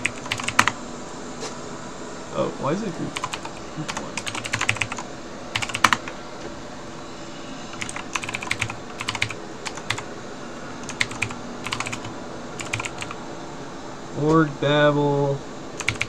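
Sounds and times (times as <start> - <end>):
keyboard keys clicking: 0.0 - 0.7, 3.2 - 5.0, 5.6 - 6.1, 7.7 - 10.0, 10.8 - 13.2, 15.8 - 16.0.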